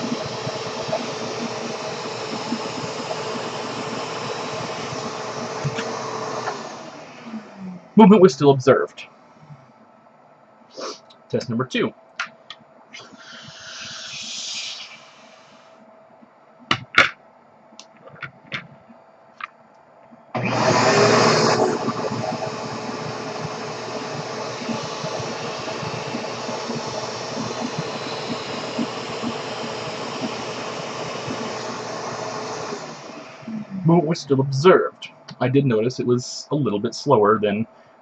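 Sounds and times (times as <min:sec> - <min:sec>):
vacuum cleaner running: 0:00.0 - 0:08.3, 0:13.0 - 0:15.7, 0:20.3 - 0:34.9.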